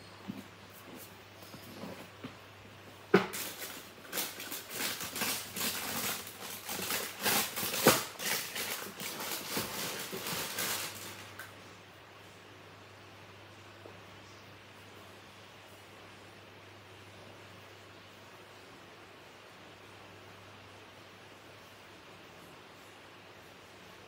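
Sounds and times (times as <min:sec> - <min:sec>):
tissue paper rustling: 0:03.3 - 0:11.4.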